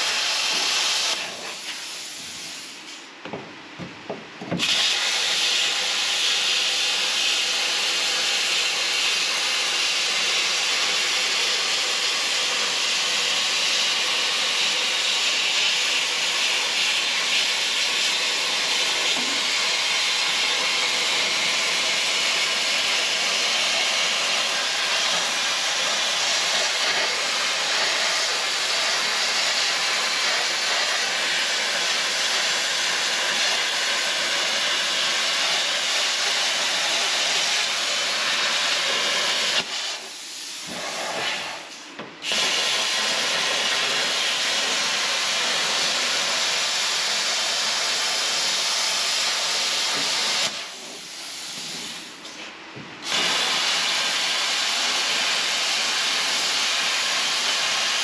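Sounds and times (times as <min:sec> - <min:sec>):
plasma cutter hissing: 0:00.0 - 0:03.2, 0:04.5 - 0:58.0.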